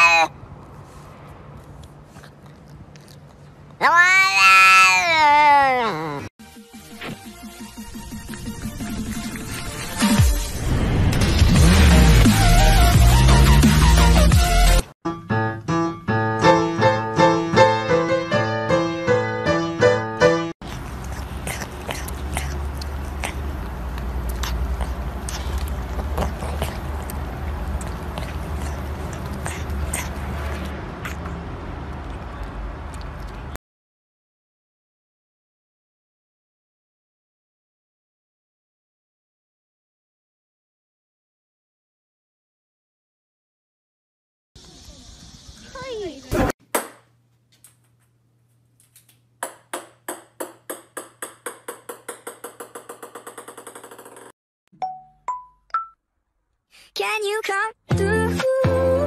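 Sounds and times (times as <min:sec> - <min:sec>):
kitten lapping milk: 0:20.6 - 0:31.2
ping-pong ball bouncing on wood floor: 0:49.4 - 0:56.0.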